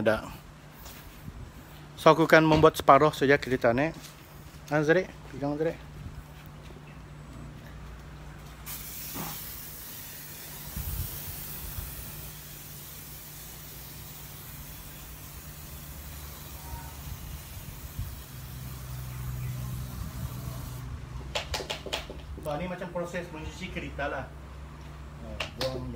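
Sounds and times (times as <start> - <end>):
foam sprayer hissing: 8.6 - 20.9.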